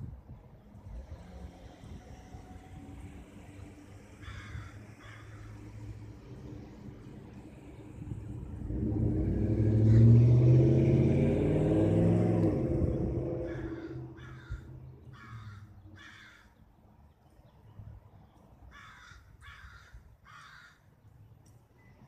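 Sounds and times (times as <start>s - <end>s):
vehicle passing: 0.6s - 16.4s.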